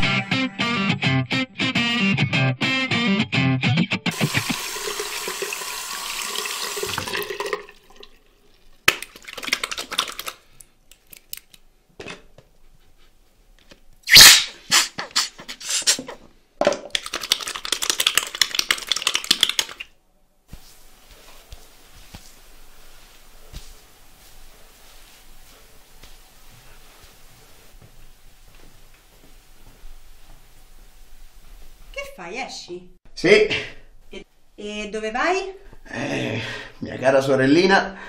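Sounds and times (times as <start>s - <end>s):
tap water running into sink: 4.1s - 10.4s
water splashing over hands: 8.9s - 10.5s.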